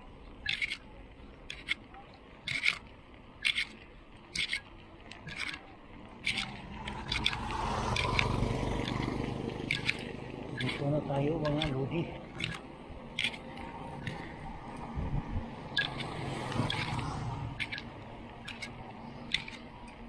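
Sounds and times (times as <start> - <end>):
bicycle clicking and creaking: 0.0 - 20.0
faint road noise: 0.0 - 20.0
rushing rumble: 5.8 - 19.8.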